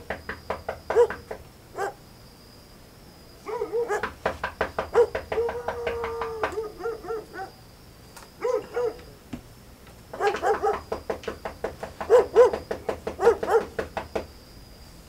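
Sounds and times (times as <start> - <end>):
dog barking: 0.9 - 2.0, 3.4 - 4.2, 4.9 - 7.6, 8.4 - 9.1, 10.1 - 11.0, 12.0 - 13.9.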